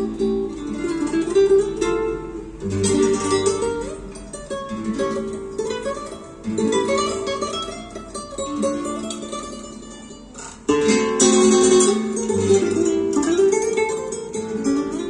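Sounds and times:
plucked string music on loudspeakers: 0:00.0 - 0:15.0.

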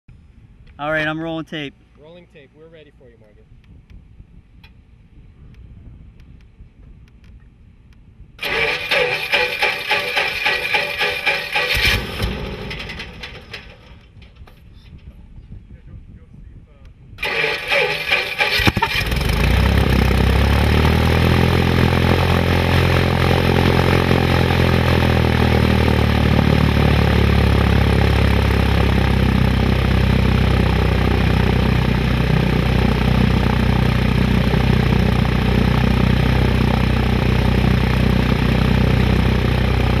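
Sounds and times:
airplane engine idling: 0:08.4 - 0:15.5, 0:17.2 - 0:40.0.

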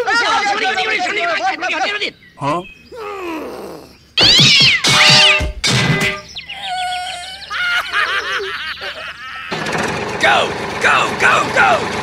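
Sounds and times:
cartoon high wavering cries: 0:02.9 - 0:05.2, 0:06.3 - 0:09.6
cartoon thud: 0:04.2 - 0:06.3.

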